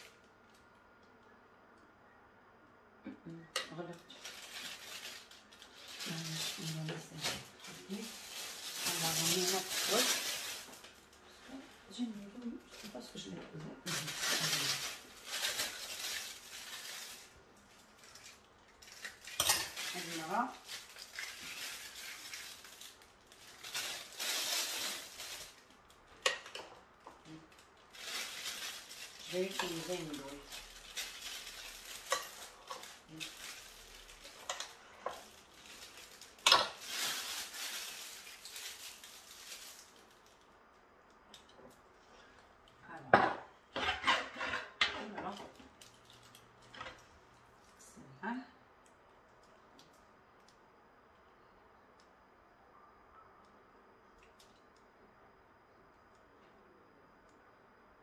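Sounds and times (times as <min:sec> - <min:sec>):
kitchen utensils clinking: 0:19.2 - 0:20.3.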